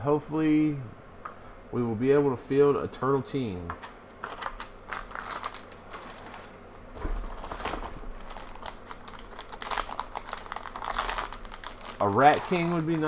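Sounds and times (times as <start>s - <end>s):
plastic packaging crinkling: 4.2s - 13.0s.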